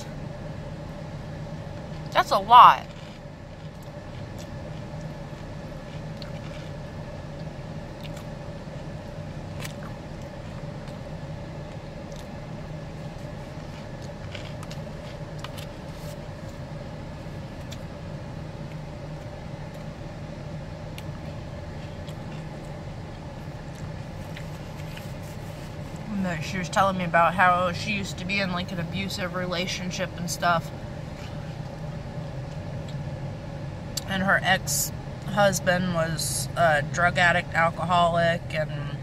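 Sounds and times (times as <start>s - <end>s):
idling car engine hum: 0.0s - 39.0s.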